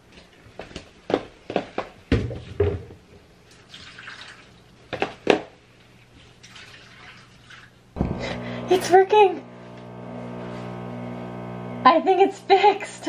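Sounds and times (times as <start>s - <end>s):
water splashing and dripping: 3.4s - 5.2s, 5.9s - 7.9s.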